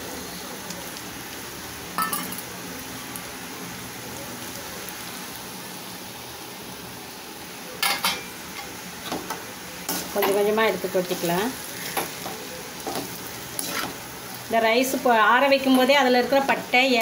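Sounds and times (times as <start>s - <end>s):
food sizzling in a pan: 0.0s - 17.0s
metal spoon clinking on pan: 2.0s - 2.4s.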